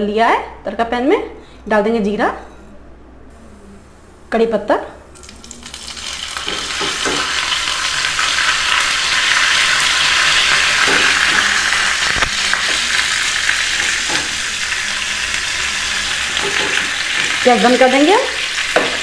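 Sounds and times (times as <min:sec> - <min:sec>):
spices sizzling in hot oil: 0:05.2 - 0:19.0.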